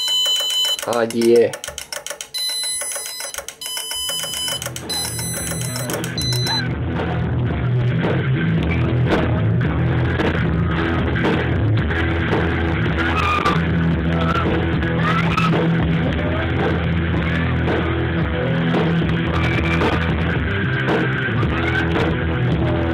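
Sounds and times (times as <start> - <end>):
rock music with guitar: 6.1 - 22.9.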